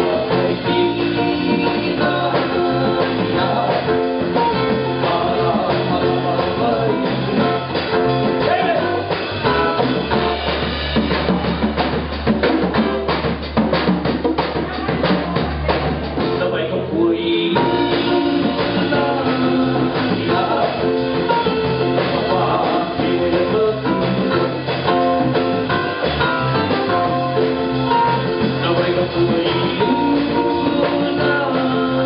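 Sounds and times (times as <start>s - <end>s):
person singing: 0.0s - 9.1s, 16.4s - 25.4s, 26.9s - 32.0s
drum kit and congas groove: 0.0s - 32.0s
electric bass: 0.0s - 32.0s.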